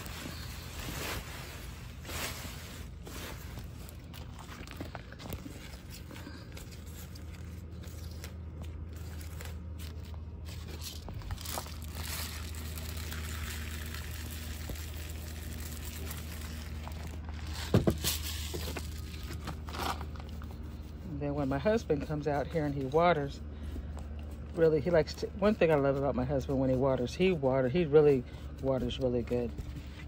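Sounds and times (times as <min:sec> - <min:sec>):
granular fertilizer sprinkling: 0:00.0 - 0:20.8
rustling and crinkling handling: 0:00.0 - 0:30.0
steady low hum: 0:00.0 - 0:30.0.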